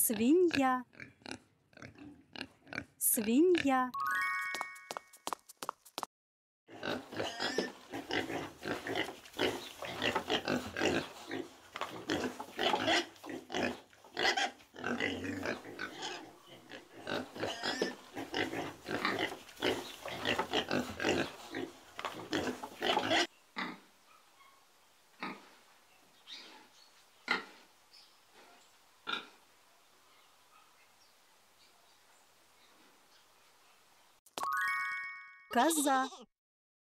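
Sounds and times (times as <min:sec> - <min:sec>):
pigs grunting: 0:00.9 - 0:03.0, 0:06.7 - 0:23.9, 0:26.3 - 0:27.7, 0:28.3 - 0:29.4.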